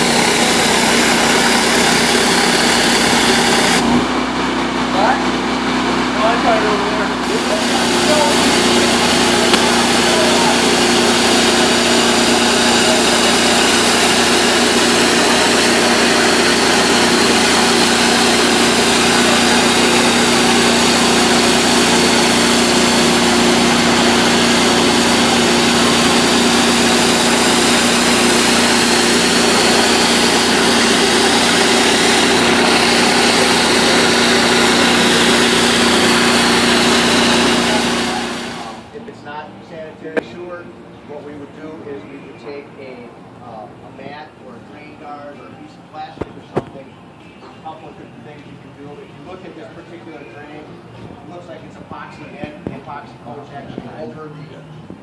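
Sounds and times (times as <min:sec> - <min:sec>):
pressure washer spraying concrete: 0:00.0 - 0:38.9
engine hum: 0:00.0 - 0:39.1.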